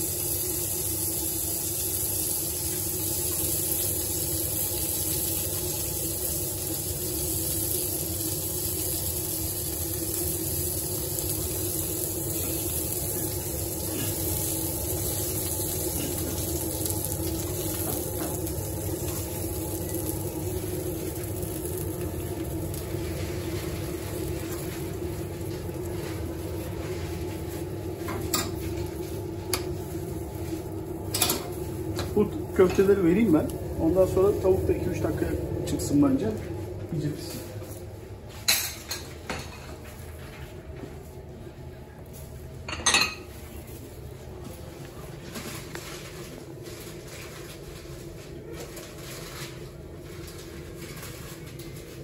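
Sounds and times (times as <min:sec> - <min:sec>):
grill sizzling: 0:00.0 - 0:40.2, 0:45.2 - 0:52.0
low hum of grill: 0:00.0 - 0:52.0.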